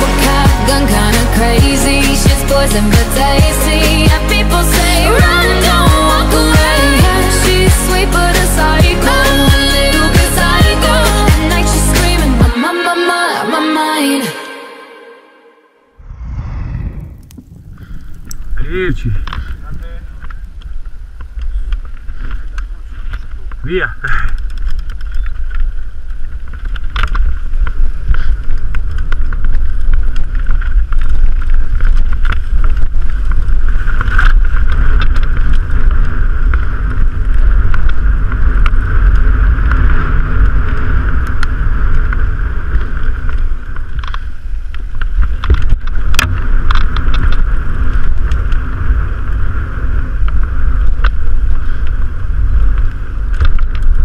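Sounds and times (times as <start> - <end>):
wind buffeting microphone: 16.0 - 54.0.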